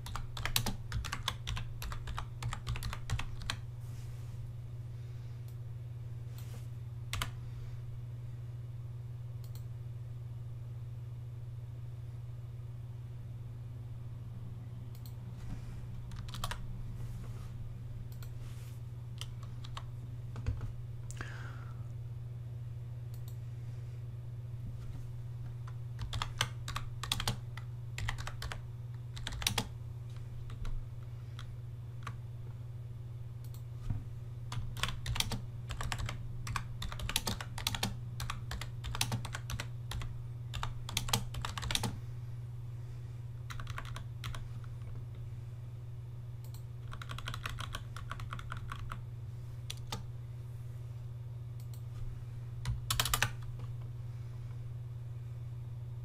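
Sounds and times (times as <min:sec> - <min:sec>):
typing on a keyboard: 0:00.0 - 0:03.6, 0:16.1 - 0:16.6, 0:26.0 - 0:28.6, 0:29.2 - 0:29.7, 0:34.5 - 0:42.0, 0:43.5 - 0:44.4, 0:46.5 - 0:49.0, 0:52.7 - 0:53.5
steady low hum: 0:00.0 - 0:56.0.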